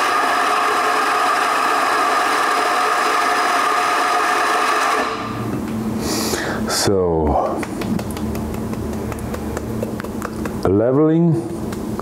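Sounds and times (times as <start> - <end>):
coffee grinder grinding: 0.0 - 5.3.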